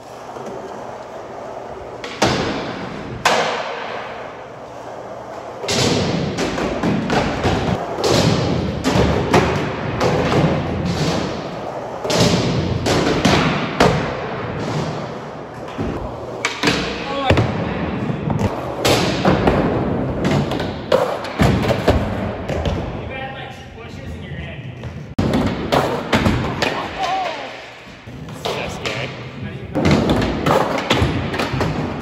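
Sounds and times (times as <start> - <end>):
skateboard impacts: 0.0 - 23.0, 24.8 - 32.0
skateboard wheels rolling on concrete: 0.0 - 23.1
skateboard clacks and knocks: 2.0 - 4.9, 29.7 - 32.0.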